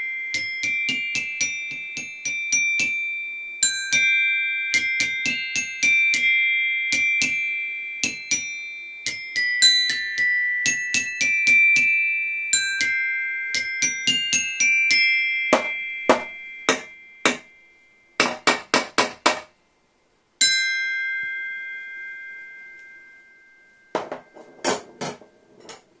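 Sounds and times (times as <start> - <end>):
toy xylophone notes: 0.0 - 18.5.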